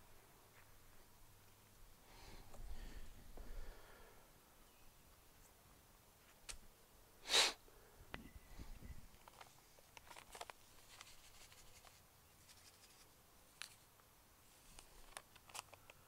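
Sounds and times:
loud hiss-like burst: 7.2 - 7.6.

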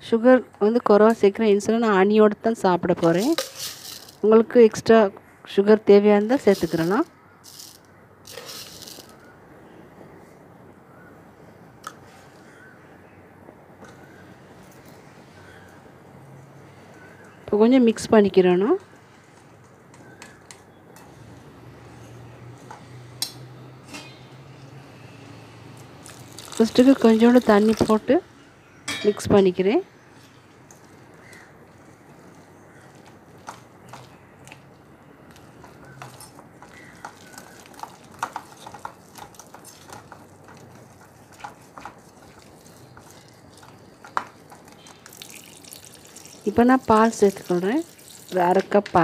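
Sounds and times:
whisk stirring batter: 35.4 - 45.1.

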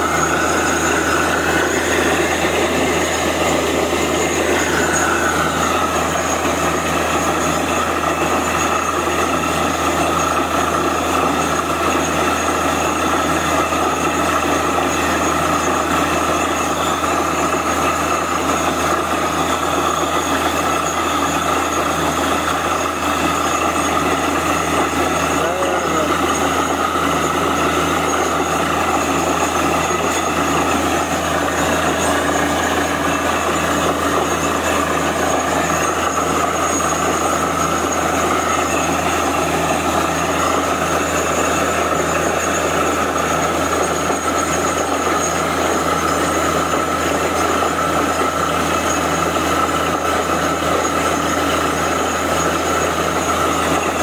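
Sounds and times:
drilling rig running: 0.0 - 54.0.

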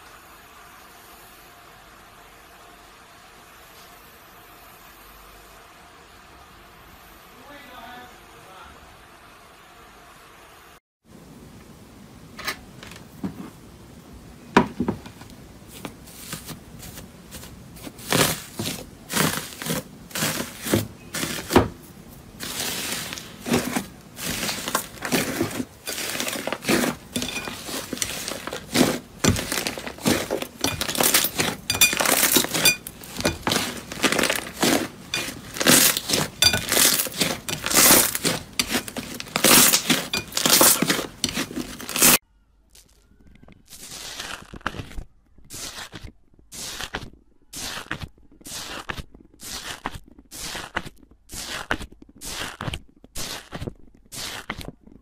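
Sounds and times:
foil crinkling: 15.8 - 54.8
slime crackling and popping: 22.3 - 55.0.

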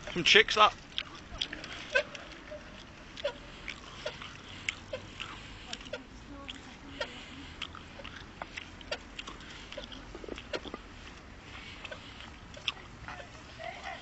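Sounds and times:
low rumble of tyres: 0.0 - 14.0.

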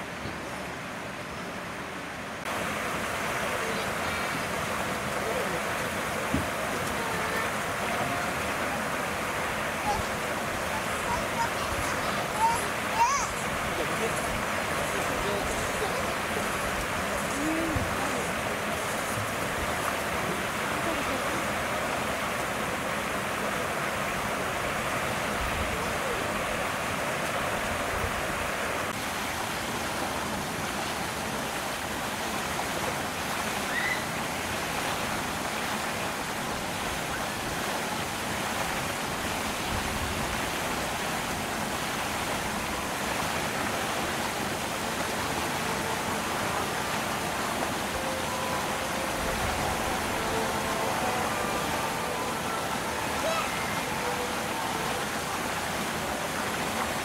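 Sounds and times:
outdoor background hiss: 0.0 - 57.0
faint human voices: 3.4 - 26.8, 45.1 - 56.6.

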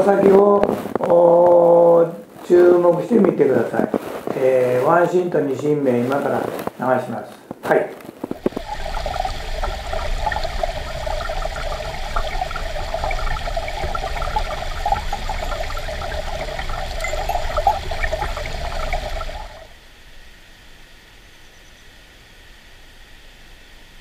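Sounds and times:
stream water running: 8.2 - 19.8.

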